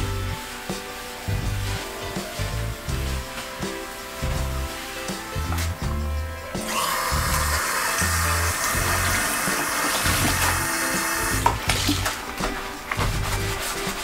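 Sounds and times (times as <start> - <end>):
faucet running into a sink: 6.6 - 11.5.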